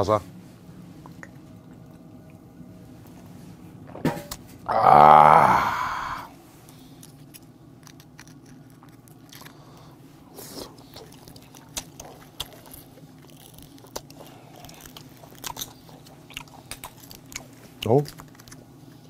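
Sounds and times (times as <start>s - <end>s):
faint low hum: 0.0s - 19.0s
close-up chewing: 1.0s - 2.4s, 6.6s - 19.0s.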